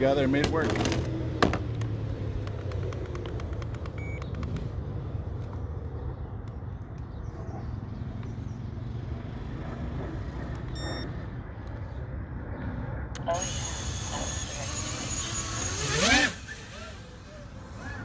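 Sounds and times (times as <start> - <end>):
short electronic beep: 10.8 - 11.1.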